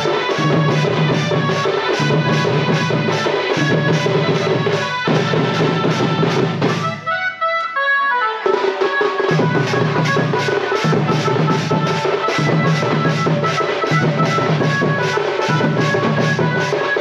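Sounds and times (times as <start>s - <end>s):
fast steady drumbeat: 0.0s - 7.1s, 8.4s - 17.0s.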